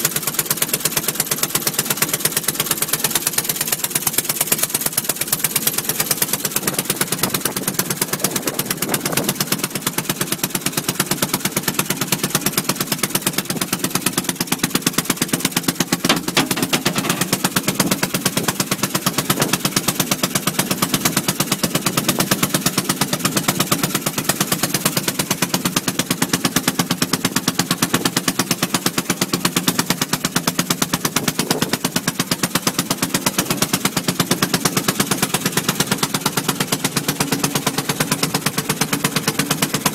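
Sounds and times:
boat engine putt-putt pops: 15.8 - 18.5.

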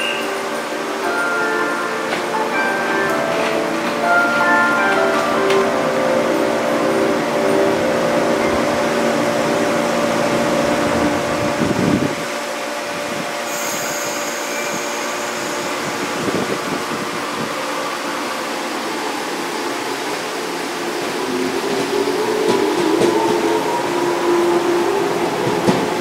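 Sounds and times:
electric train whir: 0.0 - 26.0
steady tones: 0.0 - 26.0
brief high hiss: 13.5 - 16.2.

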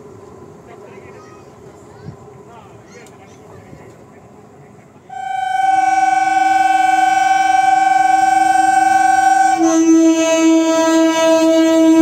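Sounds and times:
train horn blast: 5.1 - 12.0.

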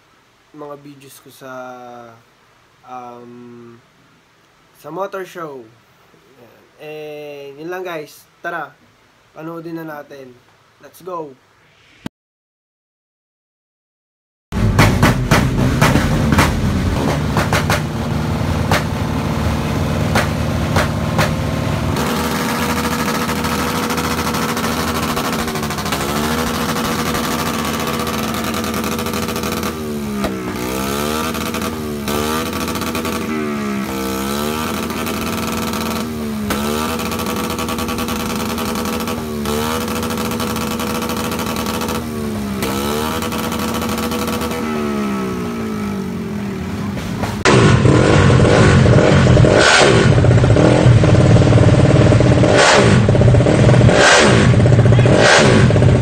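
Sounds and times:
motorcycle exhaust popping: 14.6 - 45.4, 47.2 - 56.0
motorcycle engine revving: 14.6 - 56.0.

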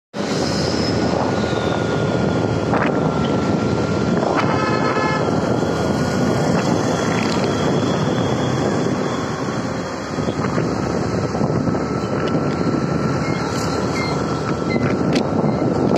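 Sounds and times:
street traffic: 0.1 - 15.9
wind on microphone: 0.2 - 15.9
vehicle horn: 4.3 - 5.4.

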